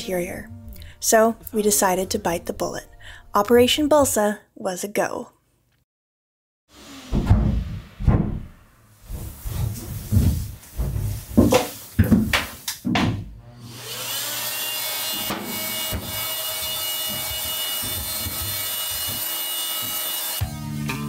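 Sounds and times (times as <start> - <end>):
electric power tool motor: 6.7 - 7.2, 13.5 - 20.4
demolition knocks and scrapes: 7.1 - 13.3
guitar music: 20.4 - 21.0.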